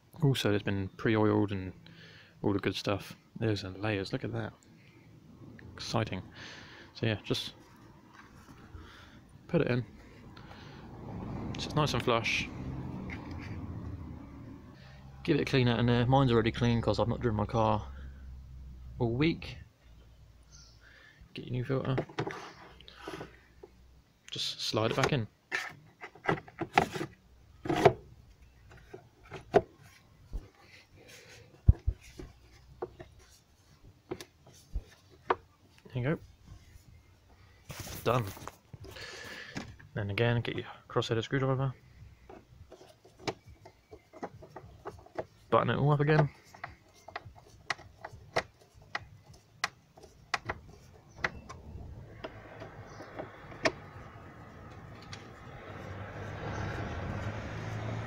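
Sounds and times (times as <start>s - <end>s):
plastic knocking and rubbing: 21.9s - 23.4s, 24.9s - 28.0s, 28.6s - 35.5s, 42.2s - 54.0s.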